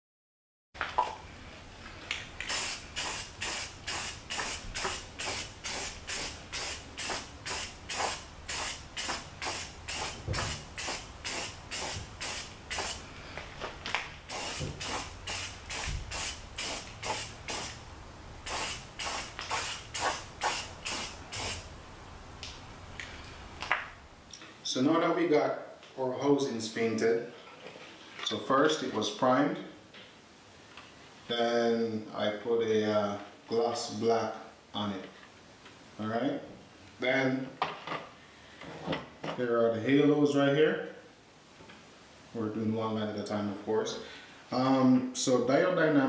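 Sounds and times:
spray paint can bursts: 2.4s - 13.0s, 14.3s - 17.8s, 18.4s - 21.7s.

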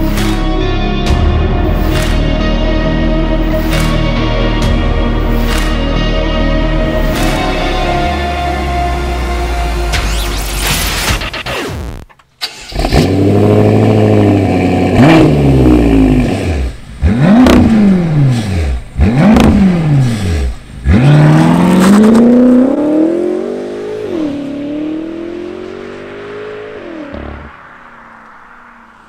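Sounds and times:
car engine starting and revving: 6.8s - 29.0s
car accelerating away: 12.4s - 29.0s.

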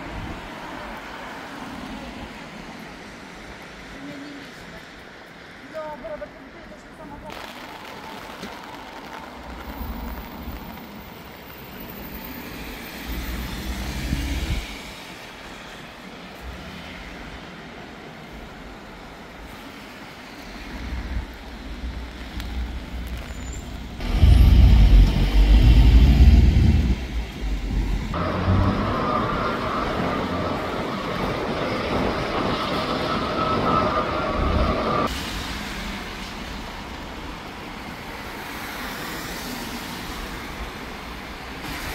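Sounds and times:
vehicles passing on wet street: 0.0s - 41.9s
heavy low rumble: 23.8s - 32.5s.

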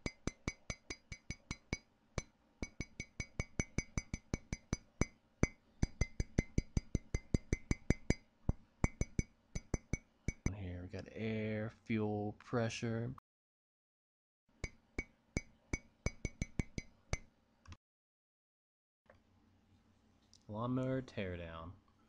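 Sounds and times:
ceramic cup being tapped: 0.0s - 1.8s, 2.6s - 8.2s, 8.8s - 10.5s, 15.4s - 17.2s.

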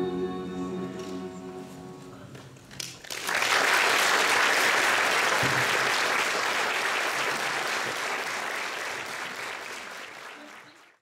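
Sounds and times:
choir singing: 0.0s - 2.2s
audience applause: 2.8s - 11.0s.

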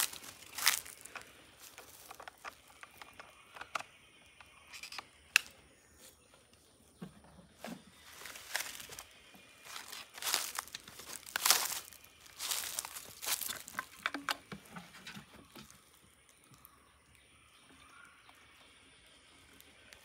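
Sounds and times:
dry leaves rustling and crunching: 0.0s - 3.0s, 7.6s - 16.8s
plastic fuel can handled: 13.4s - 15.8s.

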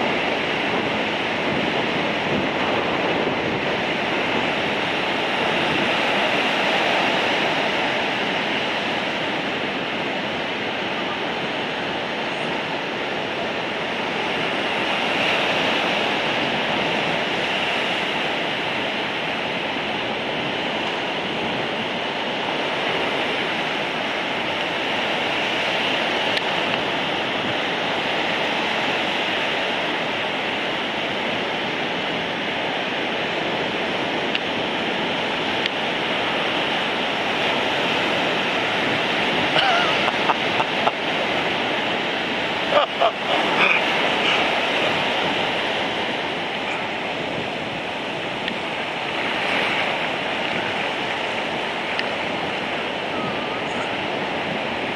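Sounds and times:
heavy surf breaking: 0.0s - 54.9s.

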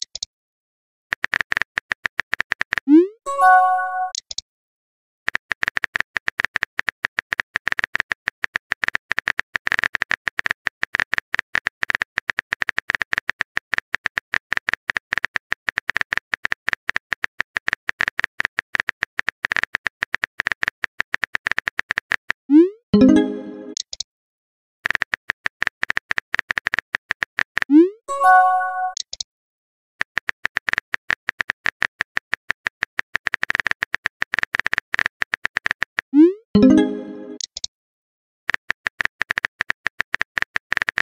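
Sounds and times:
message received chime: 3.3s - 4.2s, 23.0s - 23.8s, 28.1s - 29.0s, 36.6s - 37.4s.

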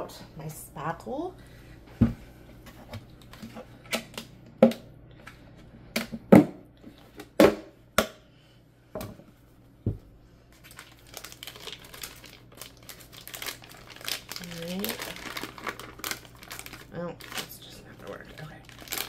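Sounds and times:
plastic crinkling: 10.5s - 19.0s.

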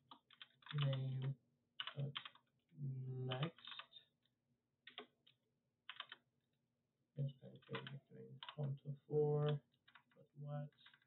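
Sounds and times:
computer keyboard typing: 1.8s - 2.4s, 4.9s - 5.1s, 5.9s - 6.2s.

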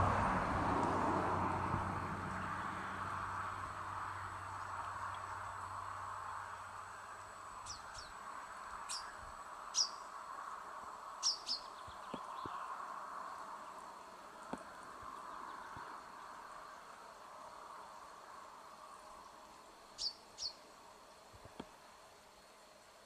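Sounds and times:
steady background hiss: 0.2s - 23.0s
chaffinches chirping: 7.6s - 8.2s, 8.8s - 10.1s, 11.2s - 12.8s, 19.9s - 20.6s.

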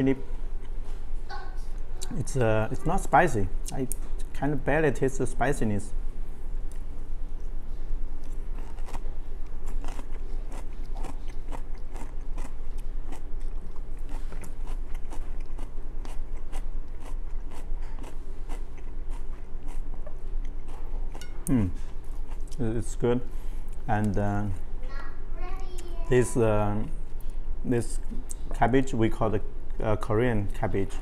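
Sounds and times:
steady low hum: 0.0s - 31.0s
crunchy chewing: 8.2s - 22.6s.

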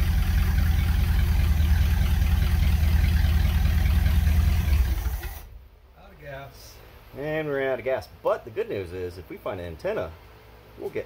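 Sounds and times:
van engine idling: 0.0s - 7.5s.

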